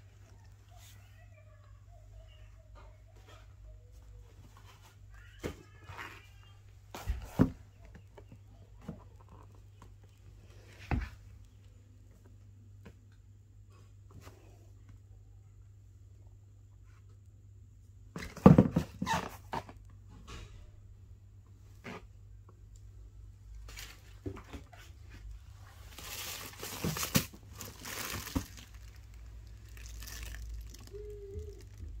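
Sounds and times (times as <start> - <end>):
paper and plastic crinkling: 23.6 - 32.0
handling cardboard box: 25.8 - 32.0.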